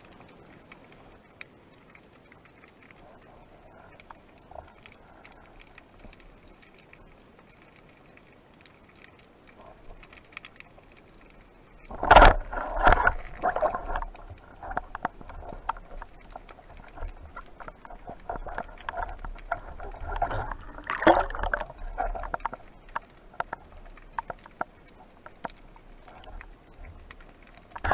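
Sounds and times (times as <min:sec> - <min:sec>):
underwater bubbling and gurgling: 0:00.0 - 0:27.9
small clicks: 0:03.9 - 0:27.9
water surge: 0:18.2 - 0:22.6.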